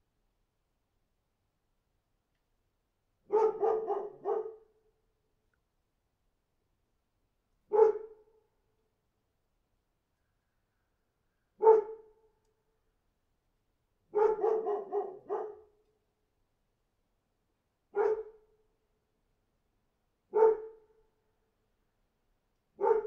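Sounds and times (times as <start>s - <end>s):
dog barking: 3.3s - 4.7s, 7.7s - 8.2s, 11.6s - 12.1s, 14.1s - 15.7s, 17.9s - 18.4s, 20.3s - 20.8s, 22.8s - 23.0s.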